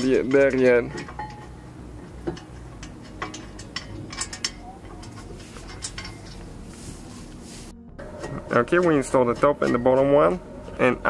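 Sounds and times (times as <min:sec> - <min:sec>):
metal bracket clicking and tapping: 0:00.0 - 0:06.8.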